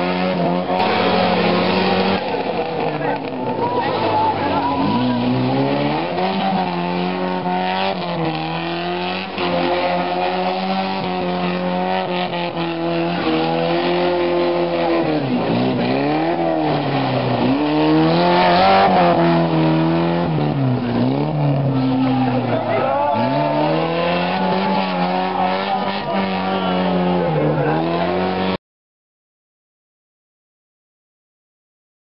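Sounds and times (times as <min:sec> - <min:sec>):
car engine revving hard: 0:00.0 - 0:28.6
tyres squealing on tarmac: 0:20.8 - 0:28.2.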